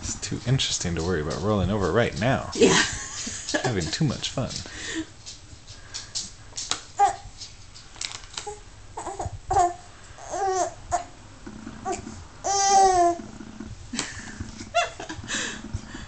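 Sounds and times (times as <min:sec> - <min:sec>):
infant babbling and cooing: 0:07.0 - 0:07.2, 0:08.5 - 0:11.1, 0:11.8 - 0:13.2.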